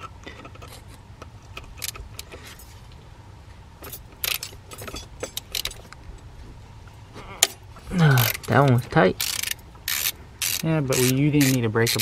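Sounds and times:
metal hand tools clinking: 0:03.8 - 0:05.9, 0:07.4 - 0:12.0.

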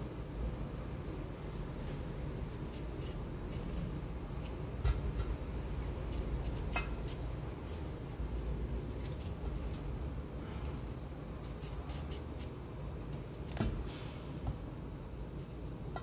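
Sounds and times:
knife scraping vegetable: 0:02.3 - 0:04.6, 0:05.7 - 0:08.2, 0:11.3 - 0:13.6.

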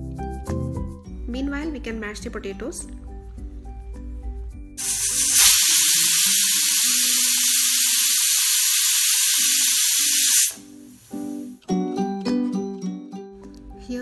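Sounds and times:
pressure cooker whistle hissing steam: 0:04.8 - 0:11.3.

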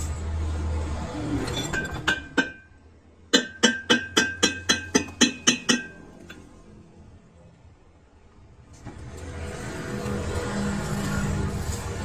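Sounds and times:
hammer ringing on steel: 0:02.1 - 0:06.2.

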